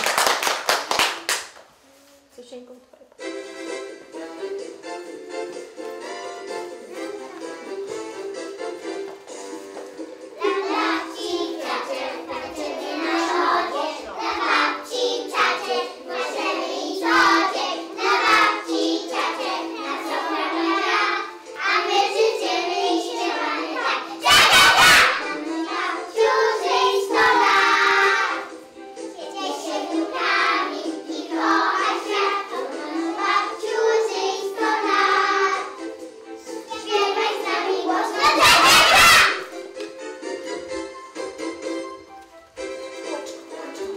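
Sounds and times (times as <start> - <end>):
instrumental backing music: 3.0 - 43.9
children singing: 10.4 - 39.5.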